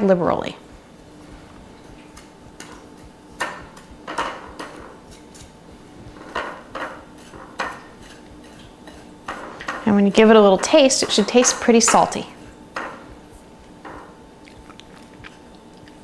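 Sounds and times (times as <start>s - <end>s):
breadcrumbs scraping on glass: 7.0s - 10.0s.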